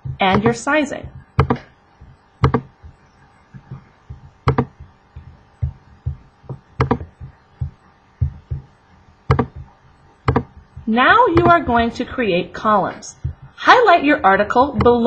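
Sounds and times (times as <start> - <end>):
sharp clicks: 0.0 - 8.7, 9.3 - 11.7
soft low thuds: 0.0 - 12.2, 13.1 - 13.8.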